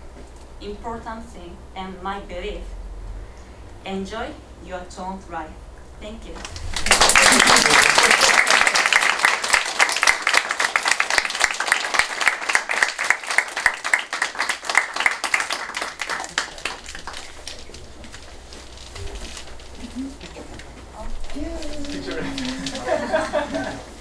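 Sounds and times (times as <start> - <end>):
audience applauding: 6.4 - 24.0.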